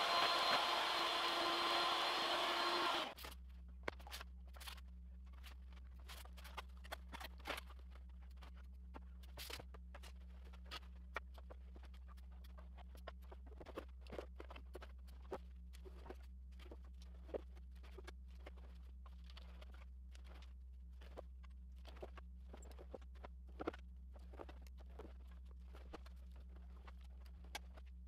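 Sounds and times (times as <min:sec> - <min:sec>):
dust collector whirring: 0:00.0 - 0:03.2.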